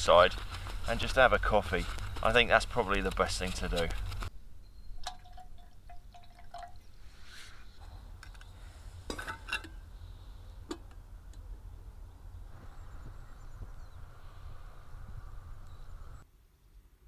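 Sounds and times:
metal kettle clinking: 5.0 - 6.7, 9.1 - 9.8.

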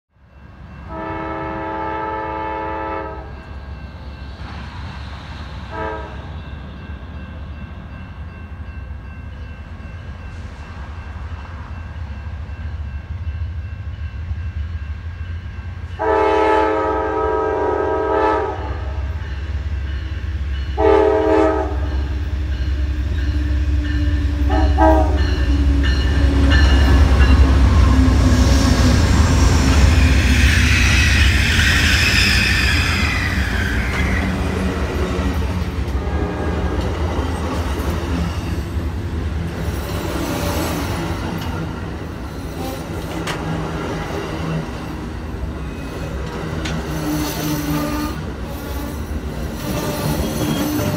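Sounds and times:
train rumbling on rails: 0.1 - 50.9
locomotive air horn blasts: 0.9 - 3.4, 5.7 - 6.2, 16.0 - 19.1, 20.8 - 22.1, 24.4 - 25.4, 47.0 - 48.3.

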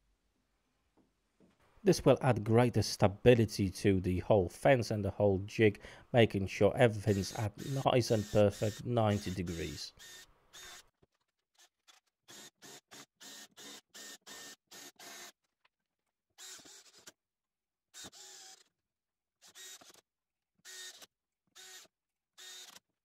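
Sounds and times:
drill motor whine: 7.1 - 10.8.

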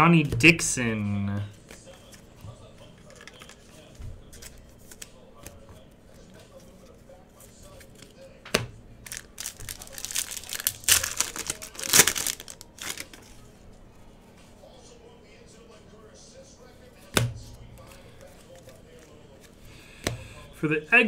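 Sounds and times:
trading cards clicking: 3.0 - 3.7
foil wrapper crinkling: 9.0 - 13.4.

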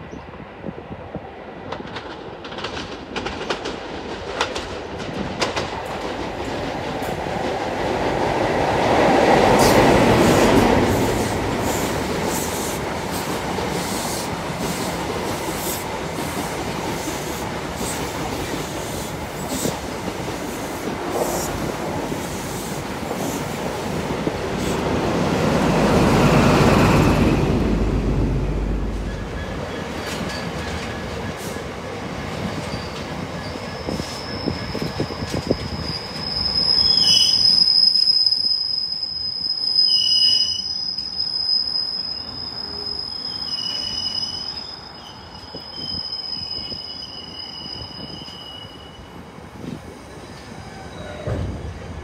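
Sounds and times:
diesel train engine passing: 1.8 - 32.5.

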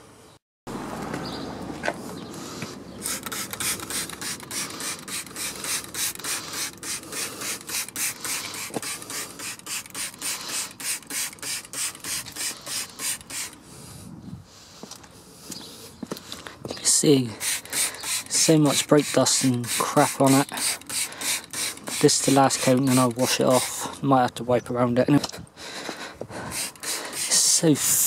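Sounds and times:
brush scrubbing car wheel: 3.0 - 13.6, 16.9 - 24.0, 26.4 - 28.0.

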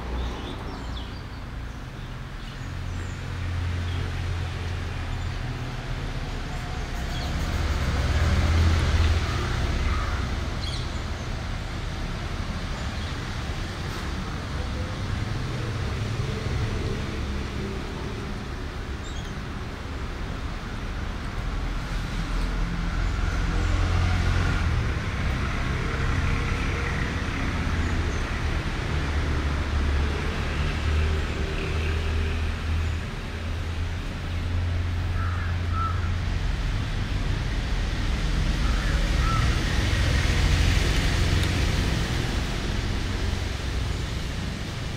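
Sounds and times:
road traffic rumble: 0.0 - 44.9
crow cawing: 9.9 - 10.2, 35.2 - 36.1, 38.6 - 39.6.

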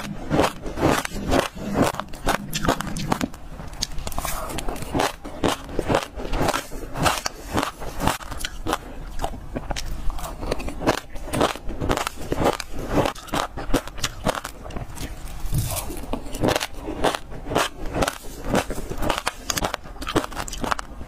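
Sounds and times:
seeds being crunched and chewed: 0.0 - 21.0.

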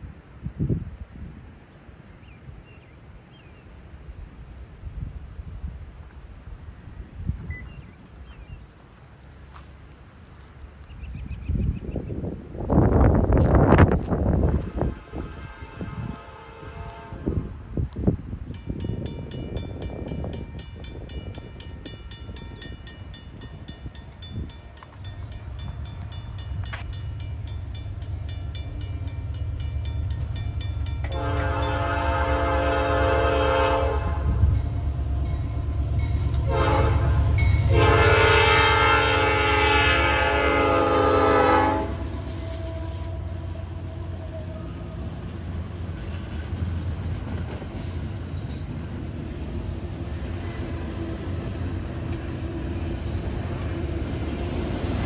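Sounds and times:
rumble of passing train: 0.0 - 55.0
locomotive horn blasts: 14.6 - 17.6, 31.0 - 34.7, 36.3 - 45.2
crossing bell ringing: 18.4 - 32.6, 34.4 - 38.4.

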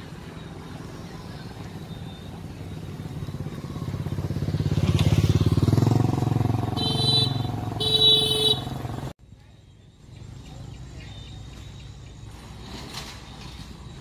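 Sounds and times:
motorcycle engine passing: 0.0 - 9.1.

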